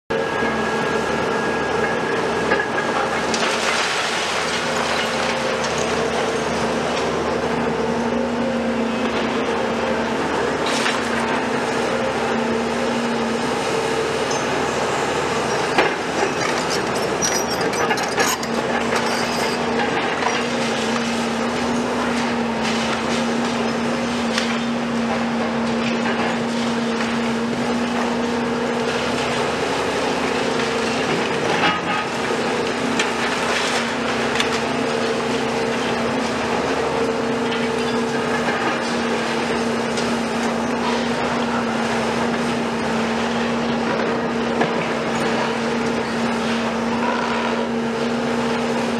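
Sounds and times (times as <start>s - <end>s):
excavator engine humming: 0.1s - 48.9s
concrete knocks and scrapes: 15.8s - 19.9s.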